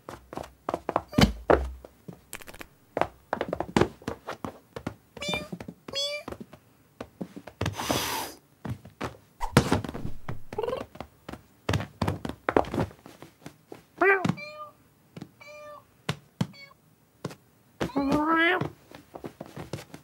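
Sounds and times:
cartoon thuds and scuffles: 1.0s - 2.6s, 3.5s - 14.5s, 17.2s - 20.0s
cat chirping calls: 5.2s - 6.3s, 15.4s - 15.8s
cat meowing: 5.2s - 6.3s, 14.0s - 14.8s, 15.4s - 15.8s, 17.9s - 18.7s.

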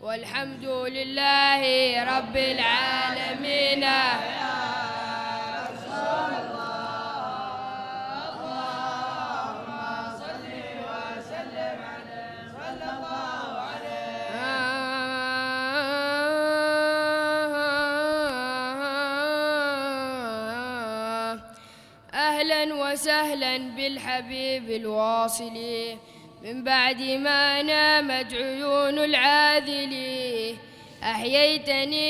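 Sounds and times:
boy singing into a microphone: 0.0s - 5.8s, 13.7s - 32.0s
male voices chanting together: 2.0s - 15.0s.

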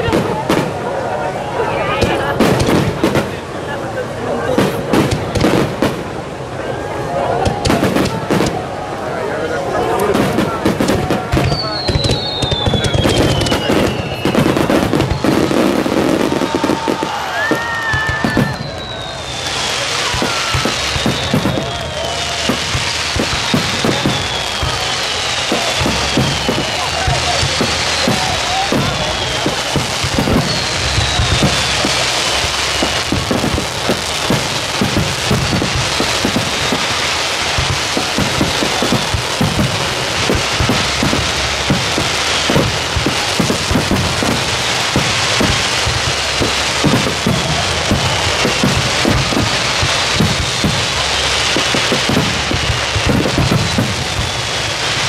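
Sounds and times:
firework hissing: 0.0s - 55.0s
fireworks crackling and banging: 0.0s - 55.0s
firework whistling tones: 6.9s - 55.0s
aerial shells booming: 25.4s - 54.4s.

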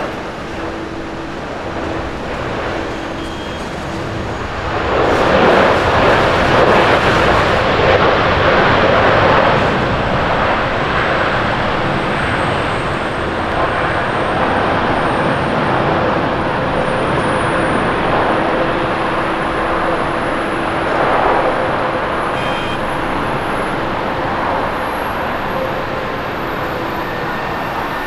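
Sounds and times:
faint high whine rising: 0.0s - 4.6s, 22.3s - 24.0s
jet engines roaring: 0.0s - 28.0s.

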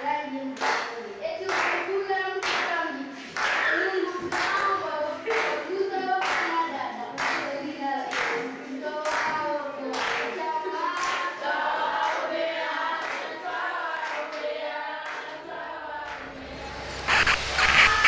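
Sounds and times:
group of voices singing: 0.0s - 18.0s
hand claps: 0.6s - 11.4s
loud music: 15.8s - 18.0s.

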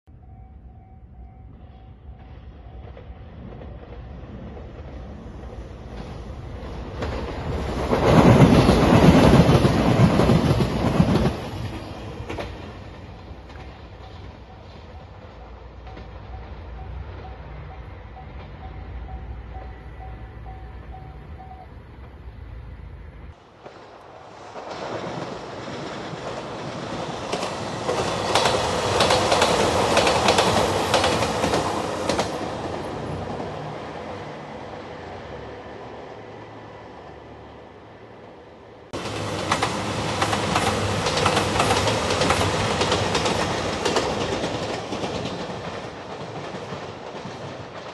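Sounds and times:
diesel train passing: 0.1s - 47.9s
wheels clicking over rail joints: 23.6s - 33.7s, 38.9s - 47.9s
wheels clattering over rail joints: 38.9s - 47.9s.

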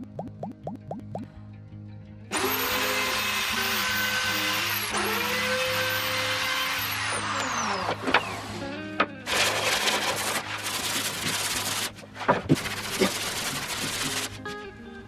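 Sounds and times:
electric router whining: 2.3s - 9.5s.

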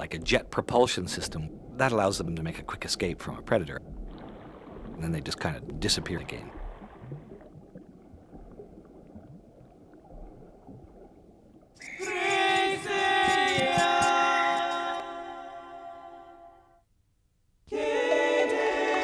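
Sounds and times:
wordless choral chord: 11.9s - 16.8s, 17.7s - 19.0s.

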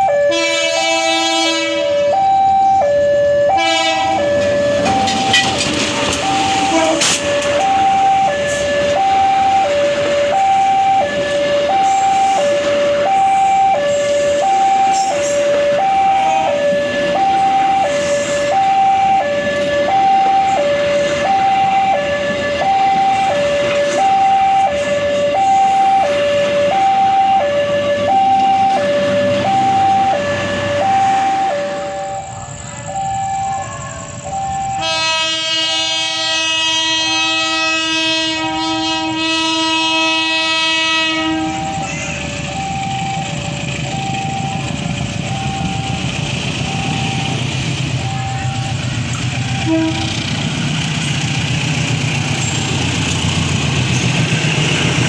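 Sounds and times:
train horn: 0.0s - 2.3s, 3.5s - 32.3s, 34.7s - 41.9s, 48.1s - 50.6s
train wheels rumbling on rails: 0.0s - 55.0s
two-tone crossing alarm: 0.0s - 55.0s.

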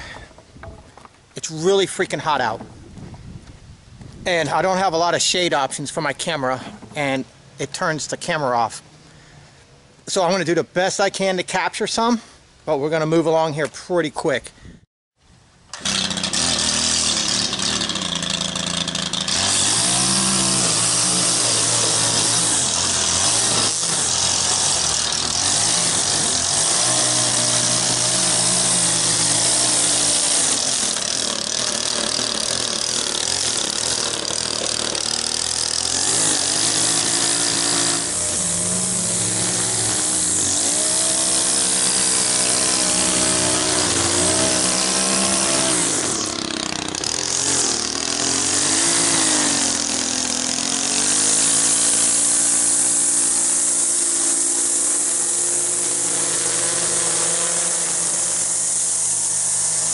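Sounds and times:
string trimmer engine revving: 15.7s - 59.9s.

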